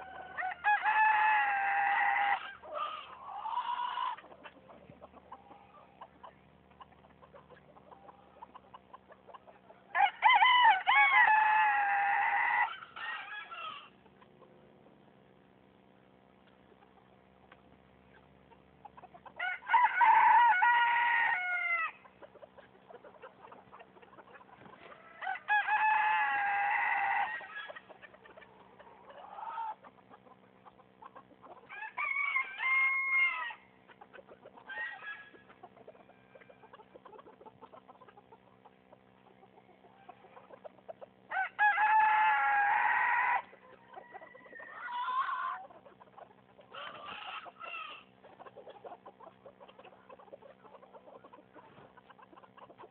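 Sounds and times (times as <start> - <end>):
chicken calling: 0.0 - 15.0, 18.0 - 52.9
chicken clucks: 0.0 - 52.9
faint steady hum: 0.0 - 52.9.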